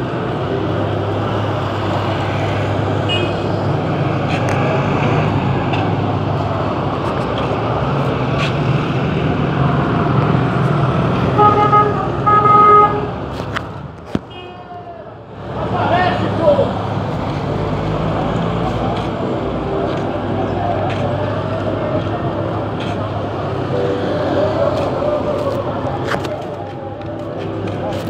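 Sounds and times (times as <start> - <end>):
bus engine and road rumble: 0.0 - 28.0
vehicle horn honks: 3.1 - 3.4, 11.4 - 13.1.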